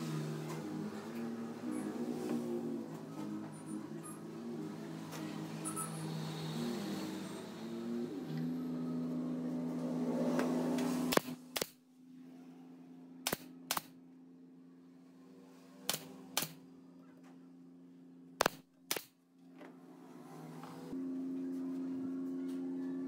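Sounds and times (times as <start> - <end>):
nail gun shots: 11.1 - 11.8, 13.2 - 14.0, 15.9 - 16.6, 18.4 - 19.2.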